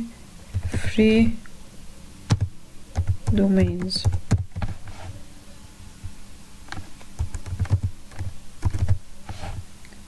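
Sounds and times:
keyboard typing clicks: 2.3 - 4.7, 6.7 - 9.0.

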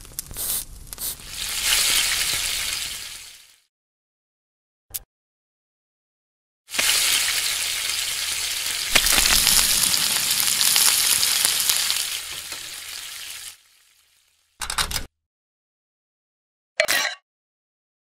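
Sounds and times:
food sizzling on a grill pan: 0.2 - 3.6, 6.7 - 14.5.

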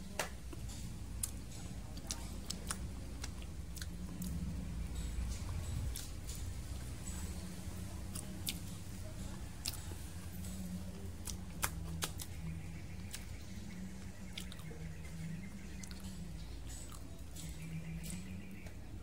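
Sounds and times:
low steady hum: 0.0 - 19.0
mouth clicks of chewing: 11.2 - 12.4, 14.3 - 14.8, 15.8 - 18.8.

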